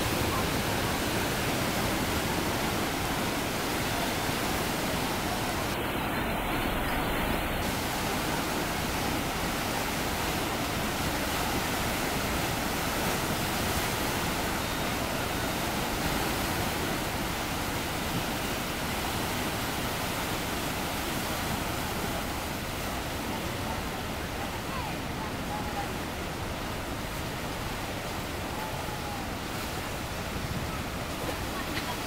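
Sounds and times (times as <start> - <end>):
turbulent water rushing: 0.0 - 32.0.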